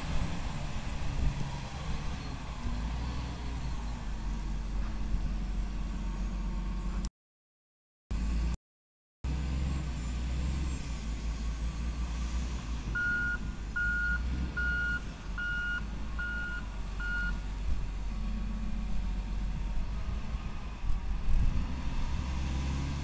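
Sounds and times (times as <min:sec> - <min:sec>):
diesel engine under load: 0:00.0 - 0:07.1, 0:08.1 - 0:08.6, 0:09.3 - 0:23.0
reversing alarm beeping: 0:13.0 - 0:17.4.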